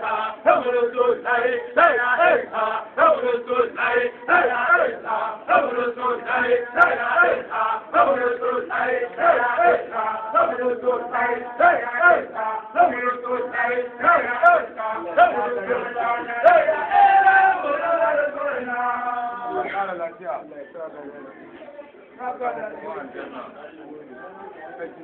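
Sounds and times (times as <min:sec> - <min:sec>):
men chanting: 0:00.0 - 0:19.7.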